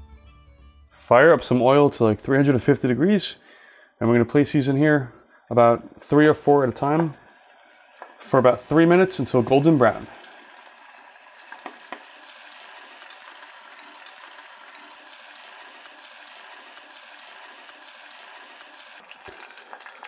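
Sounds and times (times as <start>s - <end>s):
food deep-frying in oil: 5.2s - 20.0s.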